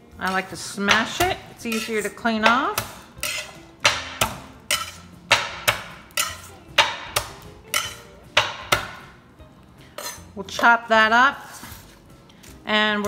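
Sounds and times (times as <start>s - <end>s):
knife smashing garlic on board: 0.9s - 9.0s.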